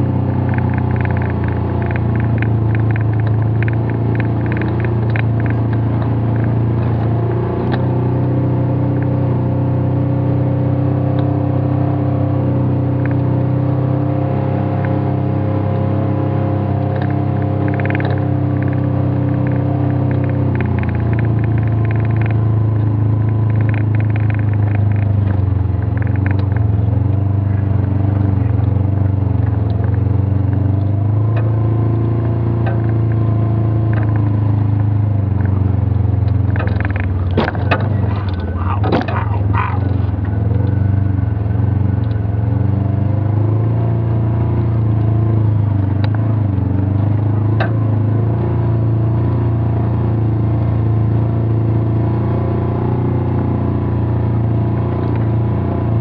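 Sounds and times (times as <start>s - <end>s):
vehicle engine running: 0.0s - 56.0s
knocks and rattles: 36.4s - 40.4s.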